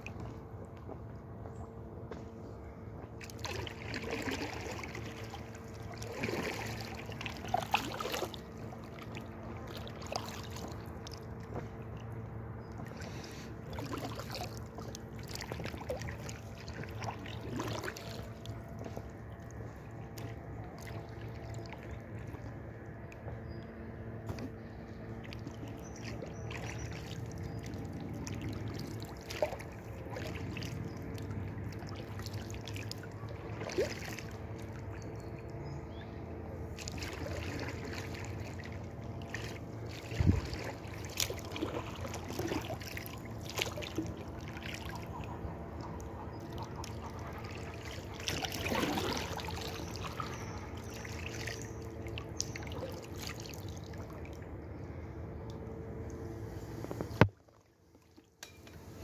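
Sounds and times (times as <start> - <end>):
faint steady hum: 0.0 - 59.0
water trickling and dripping: 13.7 - 23.7, 36.8 - 54.5.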